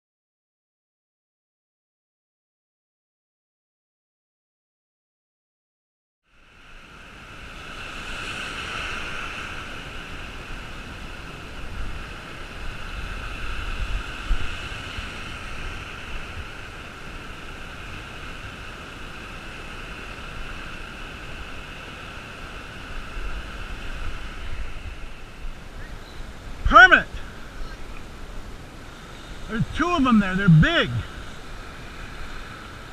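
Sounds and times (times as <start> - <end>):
wind rumbling on microphone: 6.7 - 32.9.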